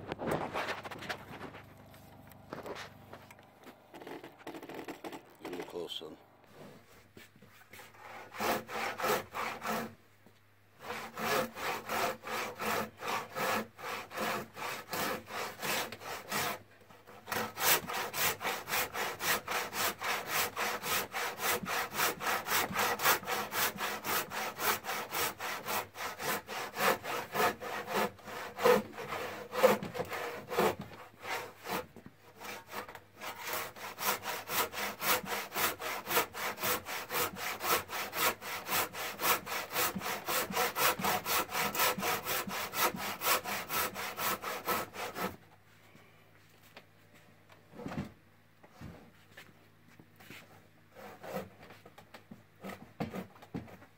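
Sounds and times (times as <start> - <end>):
handsaw cutting wood: 3.9 - 6.7, 7.7 - 10.0, 10.8 - 45.4, 50.9 - 51.6.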